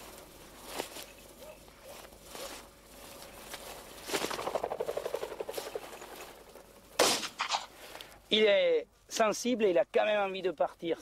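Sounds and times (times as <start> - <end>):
footsteps swishing through grass: 0.0 - 8.0
pheasant wings fluttering: 3.1 - 7.9.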